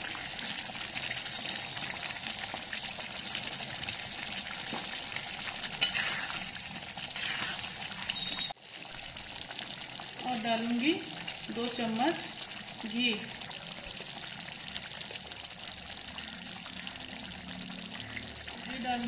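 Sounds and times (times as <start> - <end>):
ladle stirring gravy: 0.0 - 8.8
curry sizzling and bubbling: 0.0 - 19.0.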